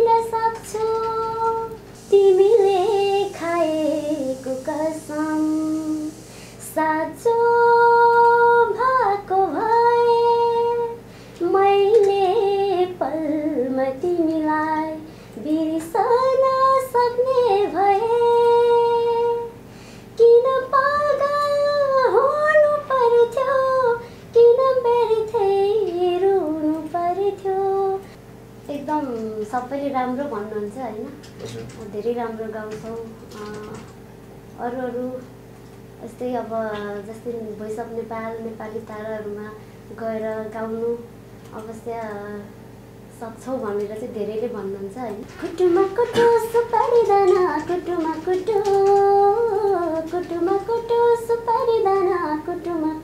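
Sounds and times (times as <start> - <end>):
woman singing unaccompanied: 0.0 - 34.0, 34.6 - 35.4, 36.0 - 53.0.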